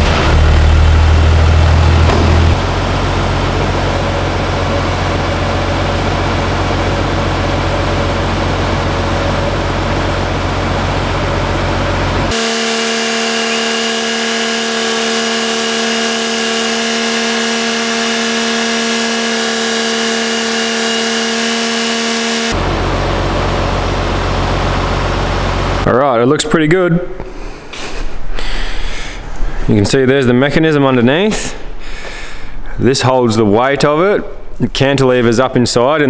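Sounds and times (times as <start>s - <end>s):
electric actuator whine: 0.0s - 25.9s
truck engine idling: 0.0s - 25.9s.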